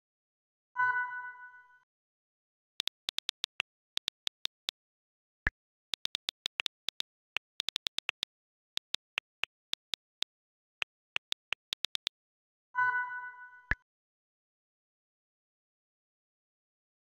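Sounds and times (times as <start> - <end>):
phone keyboard clicks: 2.8 - 4.7, 6.0 - 12.1.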